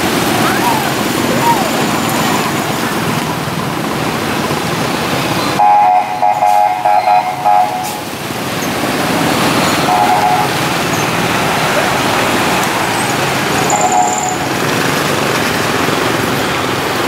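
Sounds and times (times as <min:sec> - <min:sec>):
motor scooter traffic passing: 0:00.0 - 0:17.0
vehicle horn tooting: 0:05.6 - 0:08.0, 0:09.8 - 0:10.6, 0:13.7 - 0:14.4.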